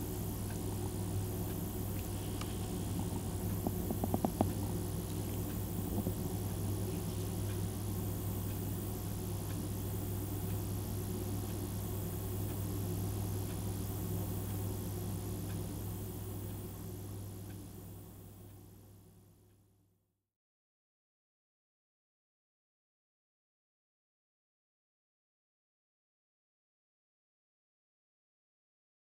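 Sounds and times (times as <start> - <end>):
low hum: 0.0 - 9.5
faint ticks: 0.3 - 17.8.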